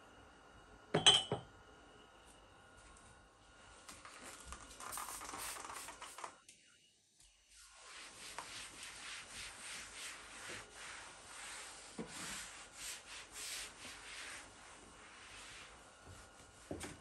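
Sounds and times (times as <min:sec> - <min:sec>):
scrubbing on a hard surface: 0:07.6 - 0:16.8.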